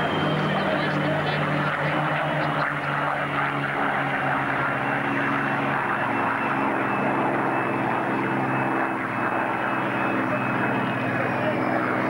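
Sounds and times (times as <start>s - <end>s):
propeller aircraft engine droning: 0.0s - 12.0s.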